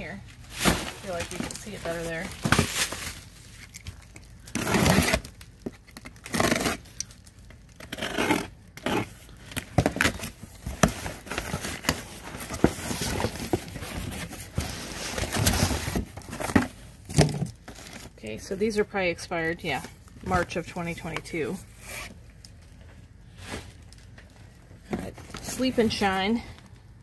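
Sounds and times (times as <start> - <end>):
packaged products rustling: 0.0 - 7.9, 8.9 - 18.5, 19.6 - 26.8
box cutter slitting tape: 4.5 - 5.3, 6.0 - 7.0, 7.8 - 9.2.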